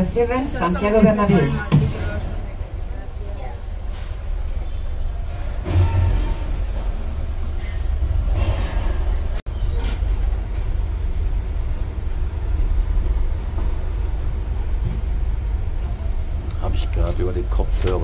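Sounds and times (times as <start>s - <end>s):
bus engine rumble: 0.0s - 18.0s.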